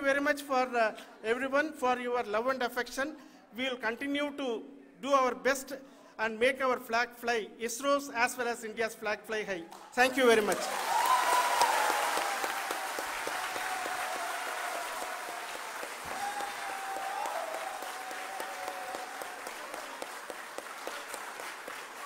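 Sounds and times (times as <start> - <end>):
audience applauding: 10.1 - 22.0.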